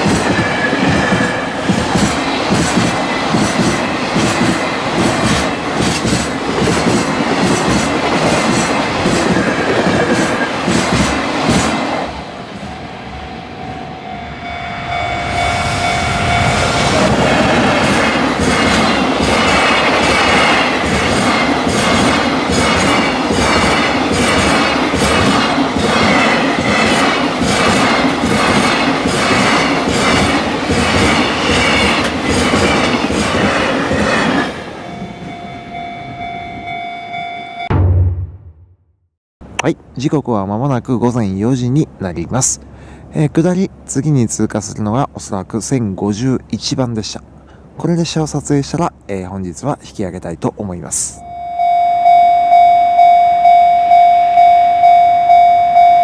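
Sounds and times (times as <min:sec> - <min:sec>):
freight train wheels clattering: 0:00.0 - 0:12.2, 0:16.6 - 0:34.7.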